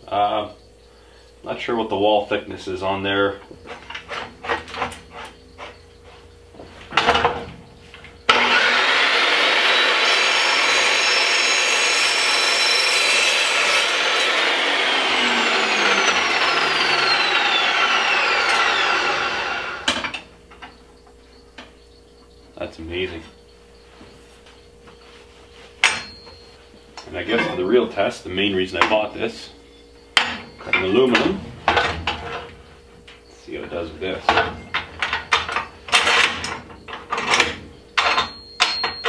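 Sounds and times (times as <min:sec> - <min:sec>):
metal chop saw cutting pipe: 0:08.3 - 0:20.1.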